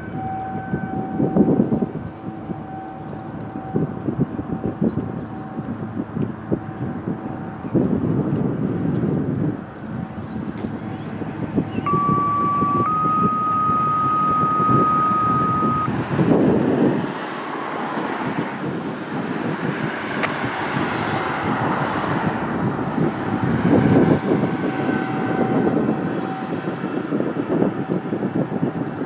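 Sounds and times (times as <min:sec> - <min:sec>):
warning siren high tone: 0:00.0 - 0:08.1, 0:10.7 - 0:16.4, 0:22.6 - 0:28.1
rough siren drone: 0:00.0 - 0:18.8, 0:20.2 - 0:28.3
wind on microphone: 0:00.0 - 0:29.0.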